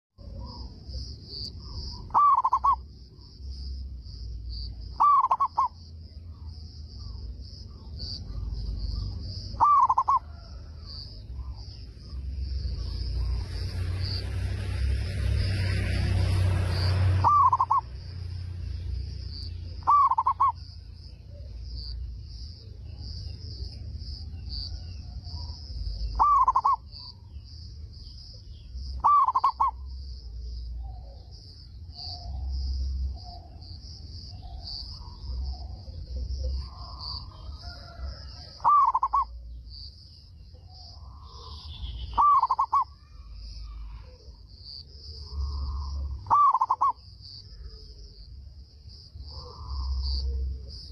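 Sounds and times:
dove cooing: 1.7s - 2.8s, 4.9s - 5.8s, 8.3s - 11.6s, 17.2s - 17.9s, 19.8s - 20.6s, 26.0s - 27.1s, 29.0s - 29.8s, 34.3s - 39.3s, 41.0s - 43.0s, 45.3s - 48.0s.

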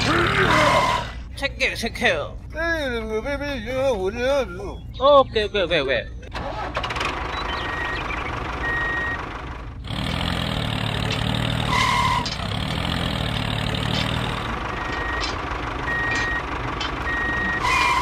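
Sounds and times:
model tractor engine humming: 6.4s - 18.0s.

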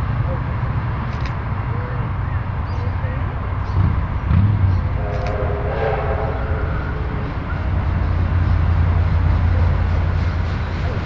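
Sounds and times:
train rumbling: 0.0s - 11.0s
steam locomotive whistle: 4.9s - 9.9s.

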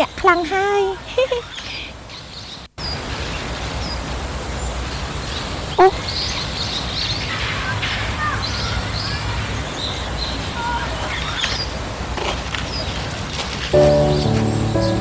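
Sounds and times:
outdoor background ambience: 0.0s - 15.0s
birds chirping: 4.6s - 11.8s, 13.8s - 15.0s.

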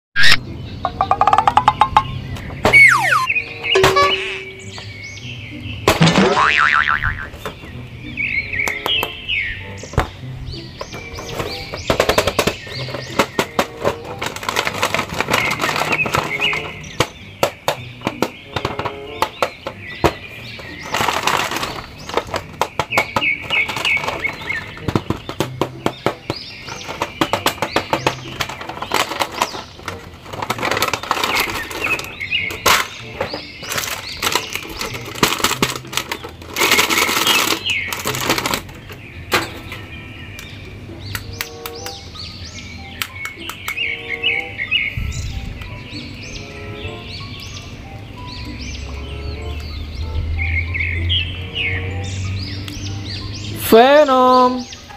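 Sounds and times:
background music: 0.2s - 54.9s
plastic bag crinkling: 14.2s - 16.6s, 33.6s - 38.7s
sharp plastic clicks: 43.0s - 43.8s.

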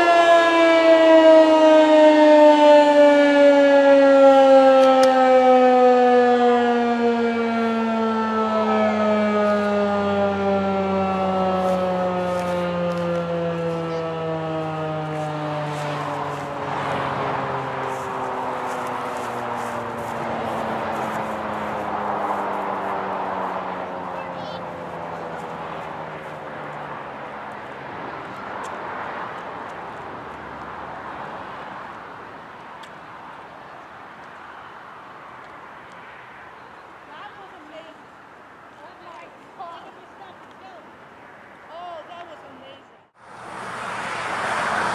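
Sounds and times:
warning siren winding down: 0.0s - 27.1s.

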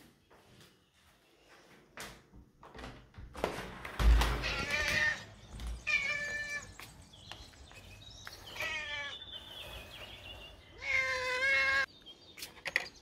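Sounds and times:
cat meowing: 10.8s - 11.9s.

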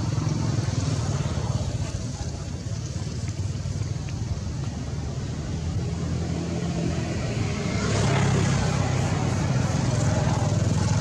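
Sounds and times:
motor traffic rumble: 0.0s - 11.0s.

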